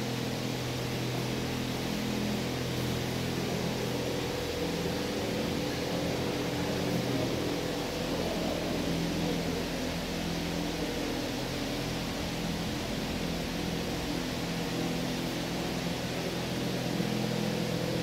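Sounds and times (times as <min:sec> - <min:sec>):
steady hiss: 0:00.0 - 0:18.0.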